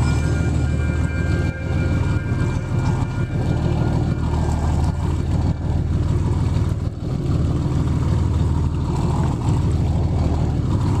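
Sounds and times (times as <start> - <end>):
boat engine humming: 0.0 - 11.0.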